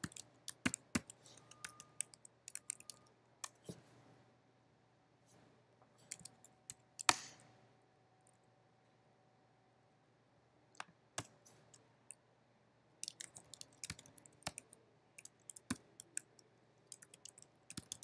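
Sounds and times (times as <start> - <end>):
computer keyboard typing: 0.0 - 3.6, 6.1 - 7.2, 13.0 - 18.0.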